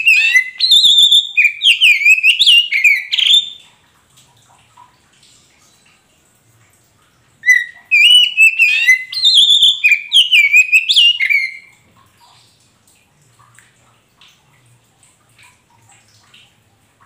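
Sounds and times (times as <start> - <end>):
bird singing whistled notes: 0.0 - 3.6, 7.4 - 11.7.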